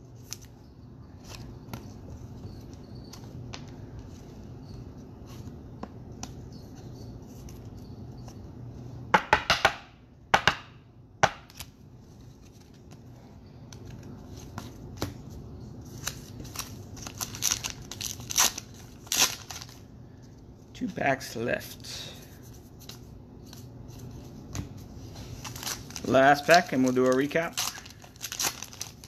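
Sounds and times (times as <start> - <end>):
faint steady hum: 0.0 - 29.0
wrapper crinkling and tearing: 16.0 - 19.8, 25.4 - 29.0.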